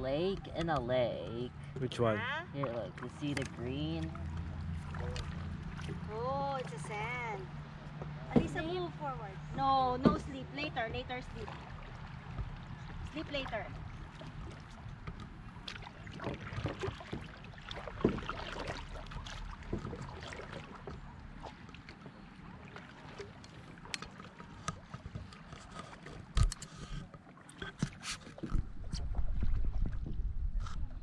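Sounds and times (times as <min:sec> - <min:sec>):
water lapping: 0:00.0 - 0:31.0
paddle strokes splashing: 0:00.1 - 0:30.9.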